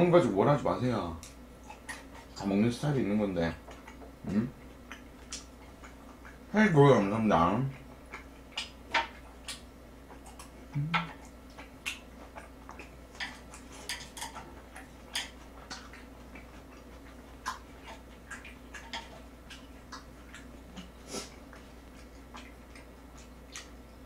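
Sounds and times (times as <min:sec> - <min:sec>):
wet chewing smacks: 0:01.2 - 0:24.0
person humming: 0:10.7 - 0:11.1.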